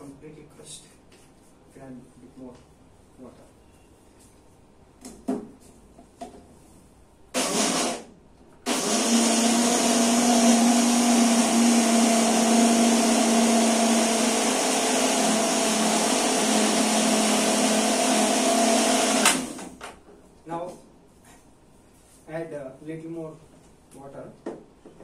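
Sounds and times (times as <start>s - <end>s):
mixer grinder motor humming: 7.4s - 19.8s.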